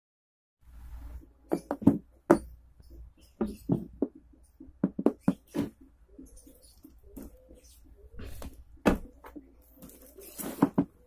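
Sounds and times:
objects knocking and thumping: 1.5s - 2.6s, 3.4s - 5.9s, 8.2s - 11.0s.

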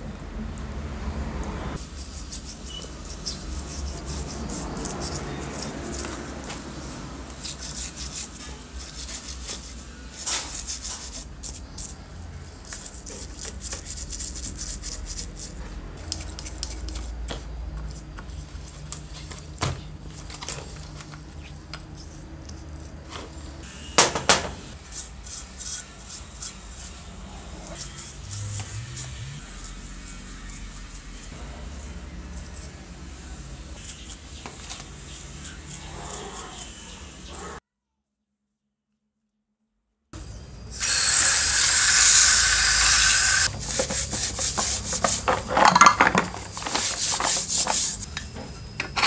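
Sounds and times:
toothbrush scrubbing metal parts: 1.8s - 19.5s, 24.7s - 37.6s, 40.8s - 48.1s
metal parts knocking plastic tub: 45.0s - 46.9s.

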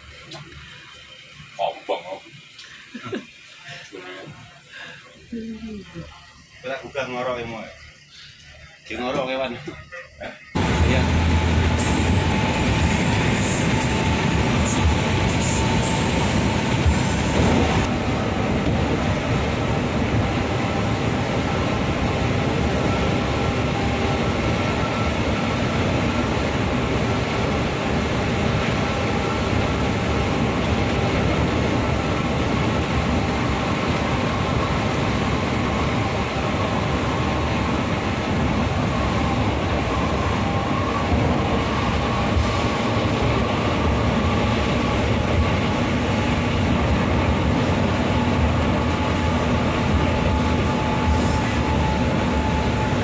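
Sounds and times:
bus engine drone: 0.0s - 53.0s
tyres hissing on wet road: 51.0s - 51.8s.

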